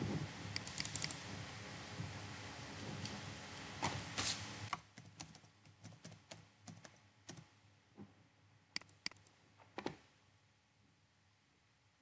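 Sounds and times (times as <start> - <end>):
keyboard typing: 0.6 - 1.2, 4.8 - 7.5, 8.8 - 9.3.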